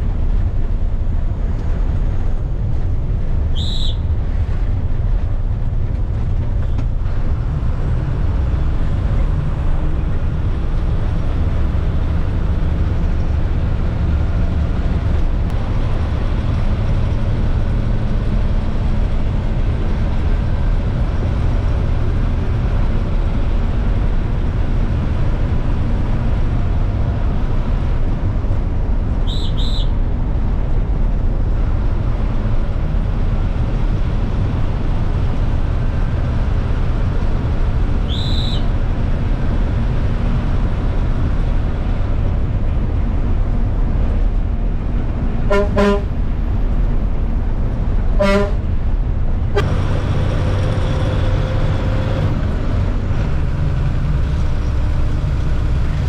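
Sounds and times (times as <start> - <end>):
bus engine and road noise: 0.0 - 56.0
bus horn honks: 45.5 - 46.2, 48.2 - 48.8.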